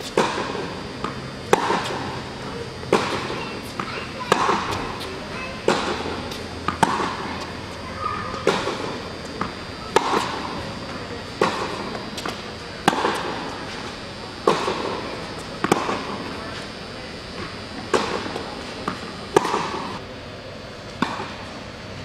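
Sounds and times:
tennis ball hit by racket: 0:00.0 - 0:02.0, 0:05.6 - 0:07.6, 0:08.4 - 0:16.7, 0:17.4 - 0:19.9
tennis ball bouncing: 0:00.0 - 0:20.0.

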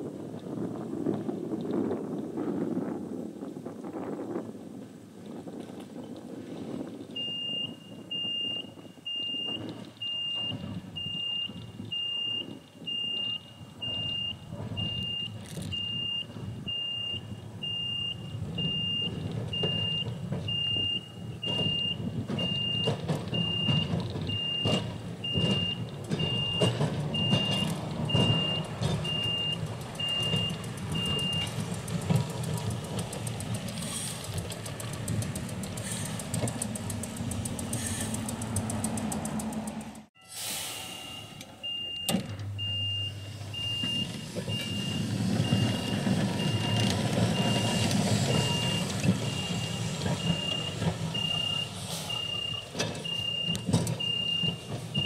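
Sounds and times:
electric tram rumble: 0:00.0 - 0:55.0
crossing warning beeper: 0:07.2 - 0:31.7, 0:37.5 - 0:38.2, 0:40.2 - 0:55.0.

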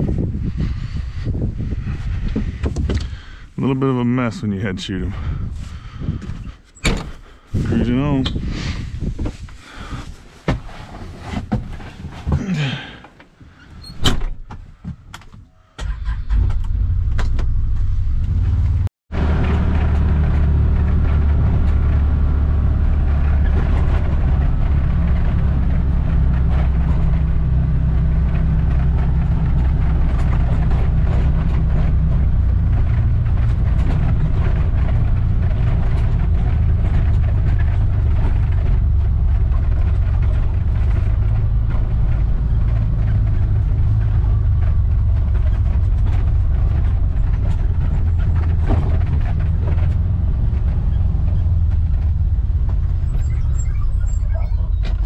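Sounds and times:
vehicle engine rumbling: 0:00.0 - 0:55.0.

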